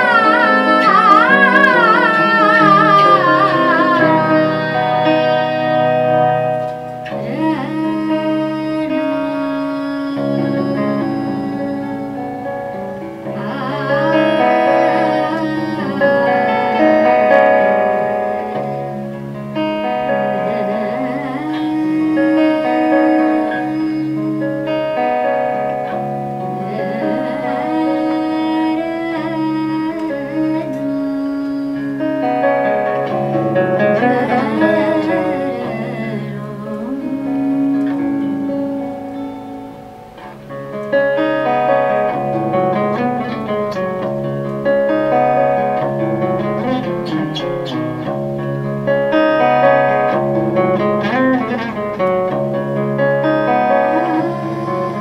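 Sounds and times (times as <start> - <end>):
guitar: 0.0 - 55.0
piano: 0.0 - 55.0
woman singing: 0.0 - 55.0.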